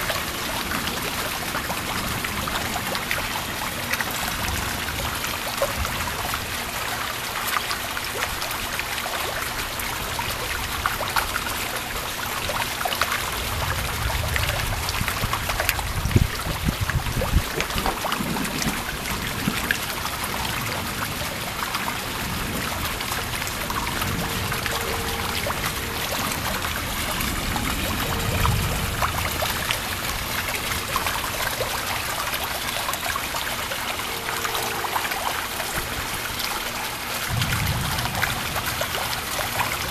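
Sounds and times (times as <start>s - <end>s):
rain falling: 0.0s - 39.9s
water trickling and pouring: 0.0s - 39.9s
distant thunder rumbles: 13.3s - 39.9s.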